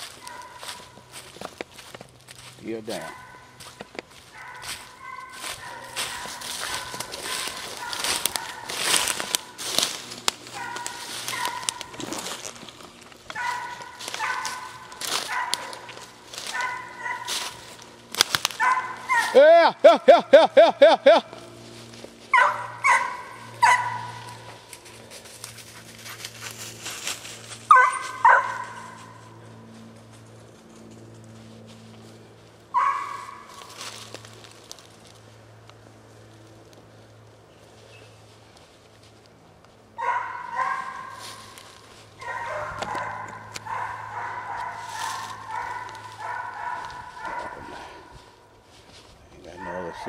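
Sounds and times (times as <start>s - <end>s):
dog barking: 0.1s - 0.9s, 3.0s - 9.4s, 10.5s - 12.0s, 13.3s - 17.8s, 18.5s - 19.4s, 22.3s - 24.5s, 27.7s - 29.2s, 32.7s - 33.6s, 40.0s - 41.4s, 42.2s - 48.1s, 49.5s - 50.0s.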